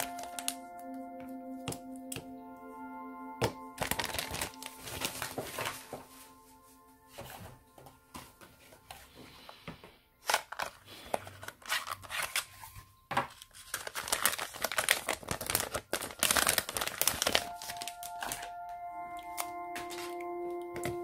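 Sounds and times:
plastic bag crinkling: 0.0 - 0.7, 3.8 - 5.9, 10.2 - 18.6.

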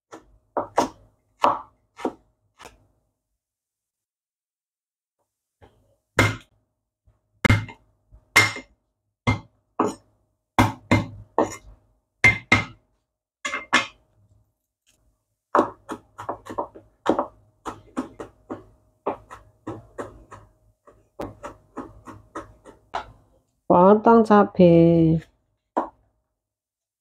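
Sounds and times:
cleaver chopping on cutting board: 0.1 - 2.2, 15.6 - 20.5.

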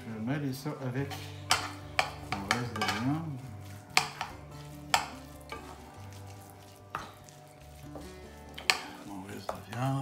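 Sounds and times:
utensil stirring food: 0.0 - 10.0
utensil clicking against dish: 4.0 - 5.6, 8.5 - 9.6.

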